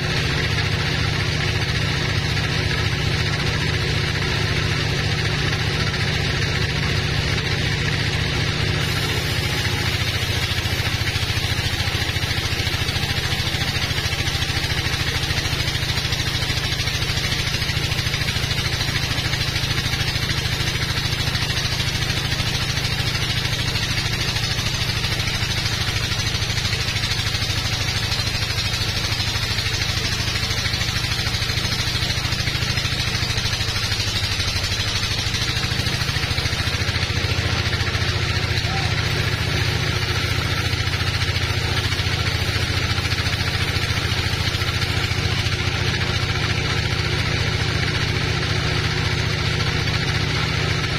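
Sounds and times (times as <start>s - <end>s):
bandsaw cutting log: 5.2s - 50.9s.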